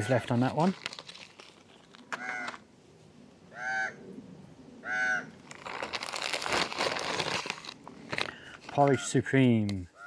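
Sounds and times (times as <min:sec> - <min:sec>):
plastic packaging crinkling: 0:00.0 - 0:02.6, 0:05.4 - 0:08.8
bird calling: 0:02.1 - 0:02.6, 0:03.5 - 0:04.2, 0:04.8 - 0:05.4.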